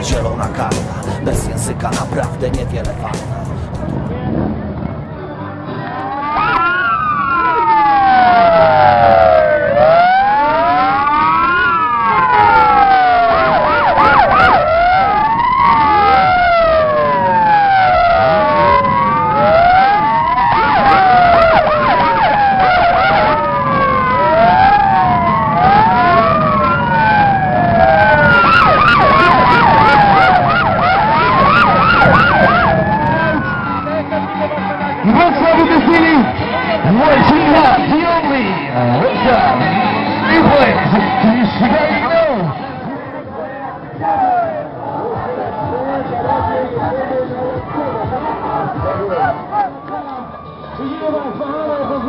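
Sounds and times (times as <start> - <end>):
police sirens wailing: 0.0 - 52.0.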